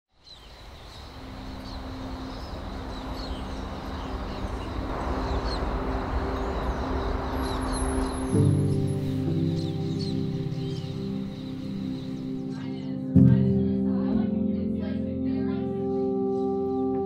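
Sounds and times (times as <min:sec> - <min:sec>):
small birds chirping: 0:00.1 - 0:13.5
steady rushing noise: 0:00.7 - 0:12.2.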